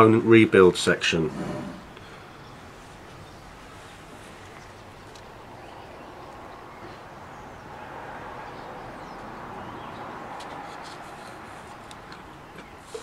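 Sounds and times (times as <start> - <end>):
steady faint hiss: 0.0 - 7.6.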